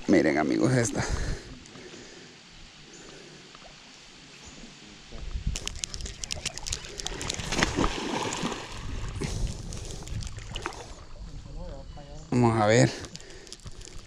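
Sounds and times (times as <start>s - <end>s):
water splashing and sloshing: 5.6s - 11.2s.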